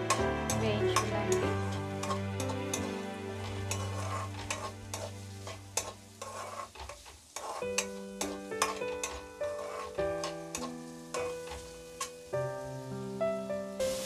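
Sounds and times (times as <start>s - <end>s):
soft background music: 0.0s - 6.7s, 7.4s - 14.0s
spatula scraping a pan: 0.0s - 12.2s
onions sizzling in oil: 0.0s - 14.0s.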